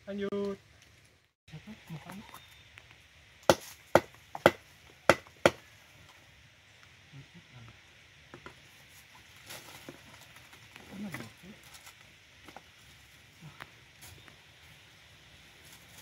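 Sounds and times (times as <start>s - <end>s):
machete chopping bamboo: 3.4s - 5.6s.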